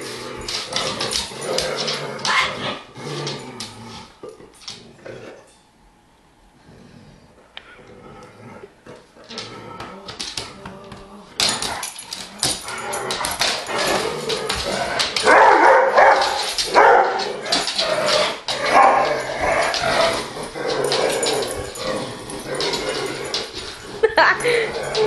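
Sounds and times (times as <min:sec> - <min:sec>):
dog barking and whimpering: 0:15.2 - 0:19.8.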